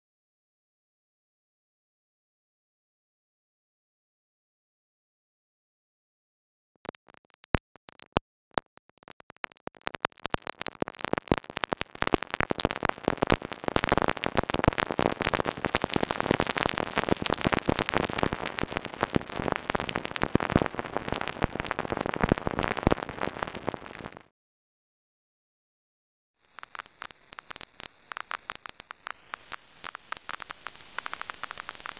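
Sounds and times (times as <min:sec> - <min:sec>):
synthesized vinyl crackle: 0:06.8 - 0:24.3, 0:26.4 - 0:31.9.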